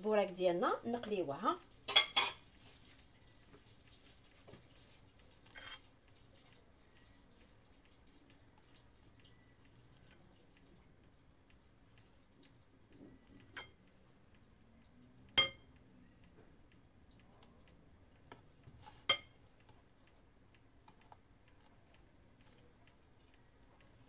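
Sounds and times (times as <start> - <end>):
forks clinking on glass bowl: 15.4 - 15.7.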